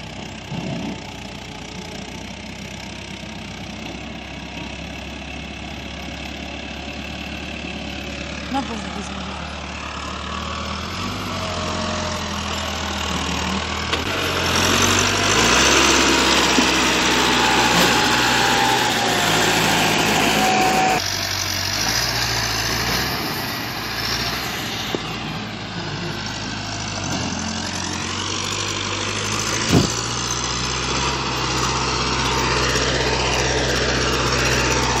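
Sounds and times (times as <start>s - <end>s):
diesel tractor engine under load: 0.0s - 35.0s.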